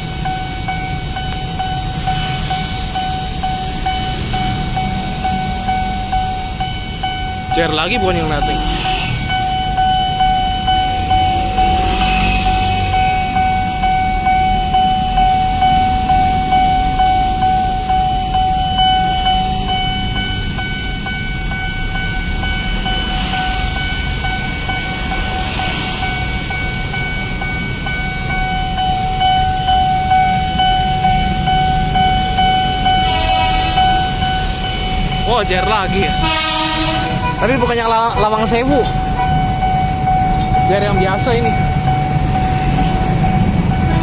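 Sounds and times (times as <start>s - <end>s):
level crossing alarm pulsing: 0.0s - 44.0s
low rumble of road traffic: 0.0s - 44.0s.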